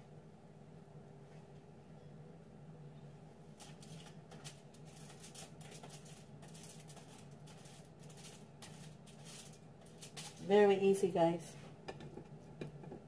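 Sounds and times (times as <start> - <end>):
steady low hum: 0.0 - 13.0
soft crinkles on foil tray: 3.6 - 11.2.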